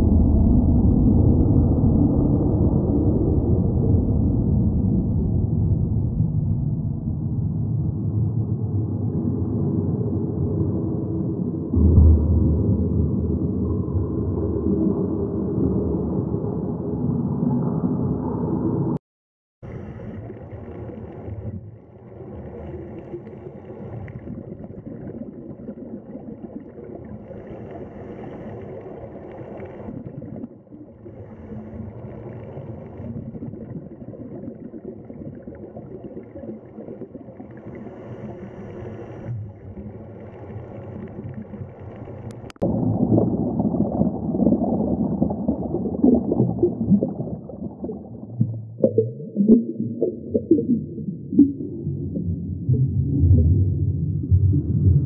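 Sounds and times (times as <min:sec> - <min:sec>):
underwater water wash: 0:00.0 - 0:19.0, 0:19.6 - 0:55.0
water bubbling and churning: 0:19.6 - 0:55.0.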